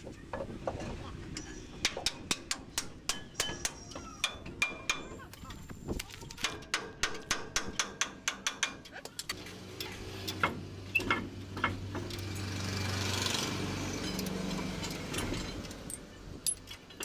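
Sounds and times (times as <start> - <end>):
engine hum: 9.3 - 17.0.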